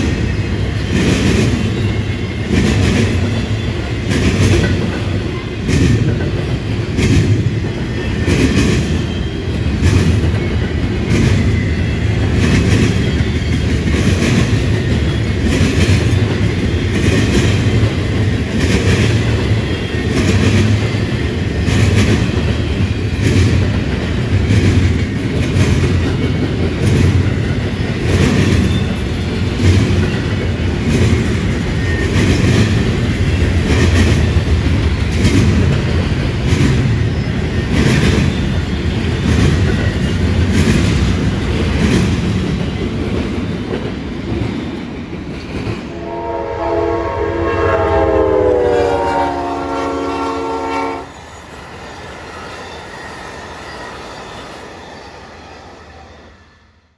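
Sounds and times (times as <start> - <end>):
freight train rumble: 0.0 - 56.9
train air horn: 45.9 - 51.2.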